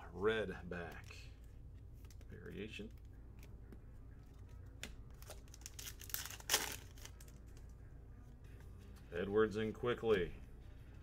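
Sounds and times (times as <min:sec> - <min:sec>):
wrapper crinkling and tearing: 0:05.2 - 0:07.5.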